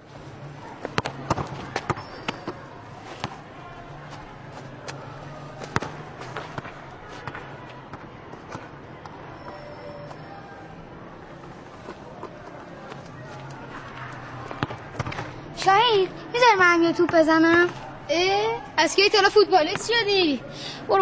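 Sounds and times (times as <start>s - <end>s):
football kicked and bouncing: 0.8s - 3.4s, 5.6s - 9.2s, 14.4s - 15.4s, 17.0s - 17.8s.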